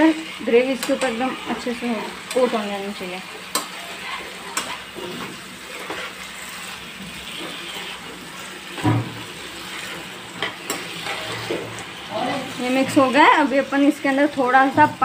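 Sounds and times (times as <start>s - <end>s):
food sizzling in a pan: 0.0s - 15.0s
spoon stirring: 3.5s - 8.5s, 9.5s - 13.4s
thump: 8.8s - 9.1s.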